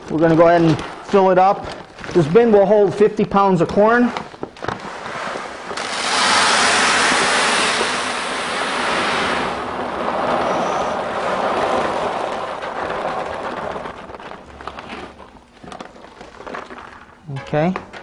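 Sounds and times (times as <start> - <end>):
popcorn kernels pouring: 4.8 - 17.1.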